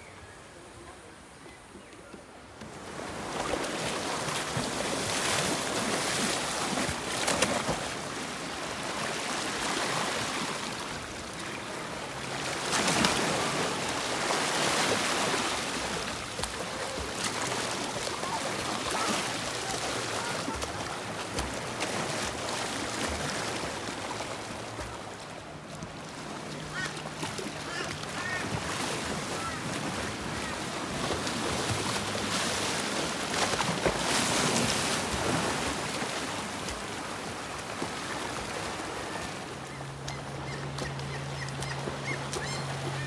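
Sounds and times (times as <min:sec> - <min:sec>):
sea water splashing: 0:02.6 - 0:43.0.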